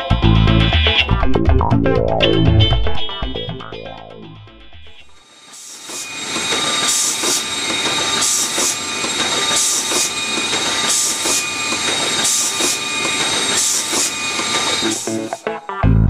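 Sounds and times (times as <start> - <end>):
machine whirring and whining: 5.0 - 15.6.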